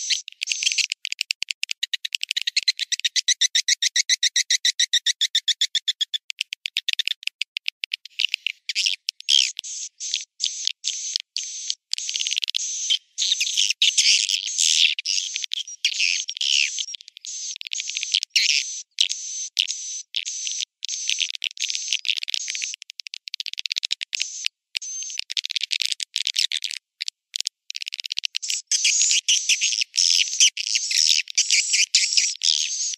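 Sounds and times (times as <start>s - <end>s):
high twittering and chirping: 0.0s - 0.9s, 8.1s - 22.8s, 28.4s - 32.9s
recorded swiftlet calls: 0.0s - 32.9s
fast even clicks: 0.9s - 2.7s, 6.1s - 9.3s.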